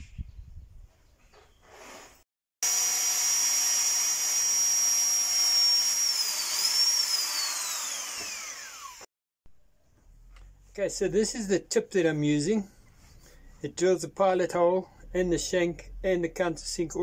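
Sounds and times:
electric drill whining: 2.6 - 9.1.

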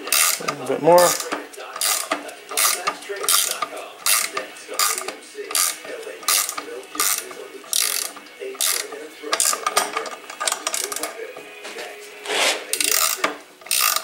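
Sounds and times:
ratcheting wrench clicking: 0.0 - 11.2, 12.7 - 14.0.

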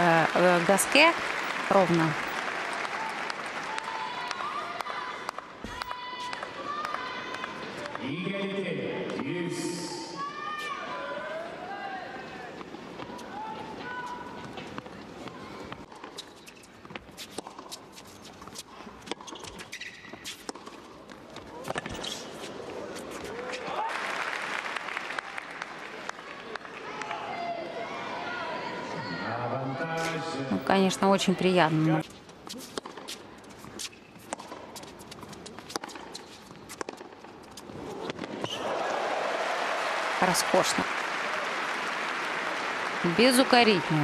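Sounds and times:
crowd applause: 0.0 - 5.4, 23.5 - 27.5, 38.5 - 44.0
knocks and clicks on court: 14.4 - 22.2, 32.6 - 38.6
shoe squeak: 15.4 - 20.6, 21.5 - 23.4, 32.0 - 38.6
racket hitting tennis ball: 32.6 - 38.6.

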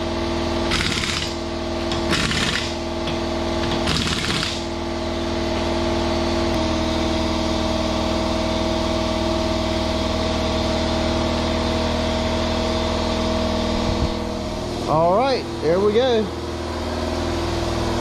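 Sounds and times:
engine-like hum: 0.0 - 18.0
impact wrench bursts: 0.7 - 4.8.

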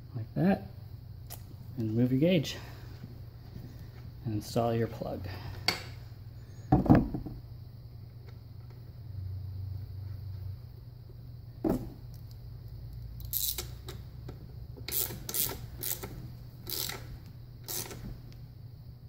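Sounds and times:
socket ratchet clicking: 13.2 - 14.0, 14.8 - 18.0.

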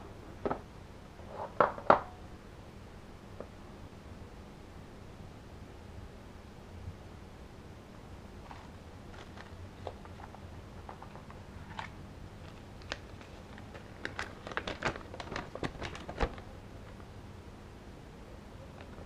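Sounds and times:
paper crinkling and snapping: 8.4 - 17.1.

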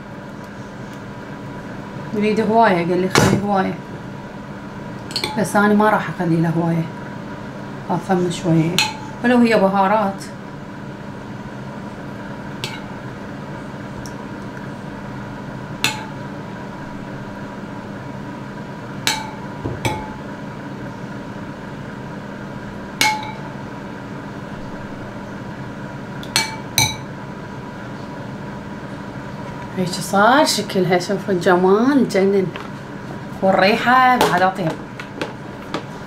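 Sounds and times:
steady hum: 0.0 - 36.0
metal spoon clinking ceramic bowl: 5.1 - 5.5.

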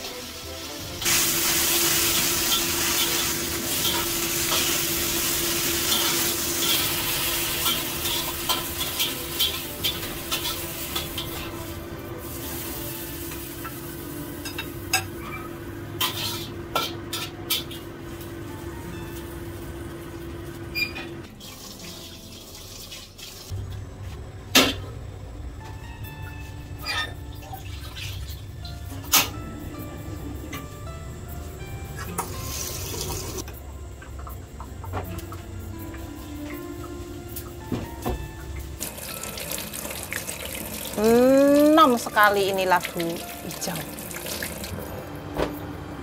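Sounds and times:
greens sizzling in a wok: 0.0 - 15.0, 38.8 - 44.7
utensils clinking on dishes: 2.2 - 11.8, 14.3 - 18.0, 26.8 - 29.4
spatula scraping a wok: 16.0 - 17.8.

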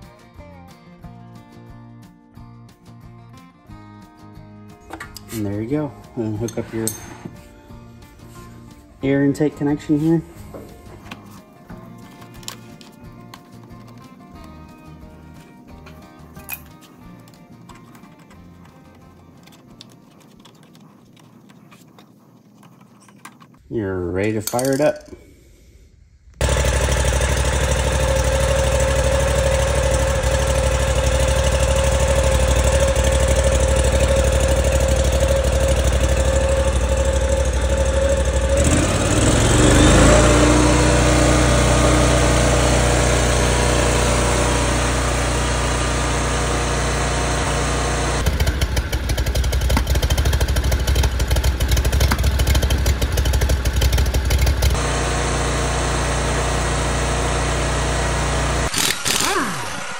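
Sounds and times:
mower engine running: 26.4 - 59.9.

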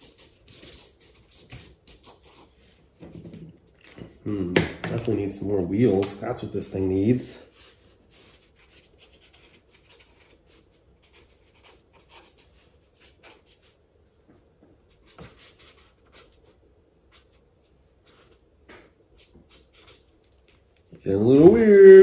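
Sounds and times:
marker scratching on paper: 0.0 - 2.6, 6.8 - 14.2, 14.9 - 20.4.

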